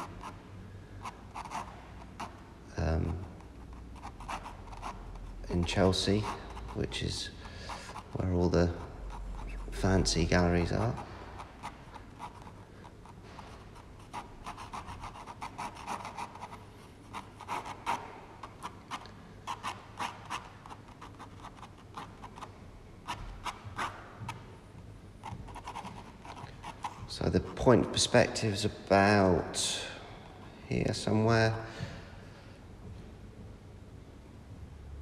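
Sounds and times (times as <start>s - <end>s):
pen scratching on paper: 0.0s - 0.4s, 1.0s - 2.4s, 3.0s - 24.0s, 25.2s - 28.0s.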